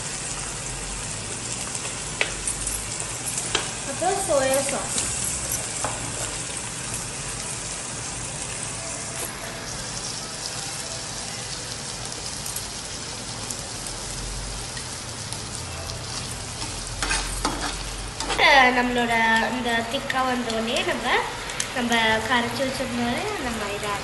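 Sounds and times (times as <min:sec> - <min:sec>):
vegetables sizzling in oil: 0:00.0 - 0:24.0
spoon scraping a pan: 0:16.1 - 0:18.6.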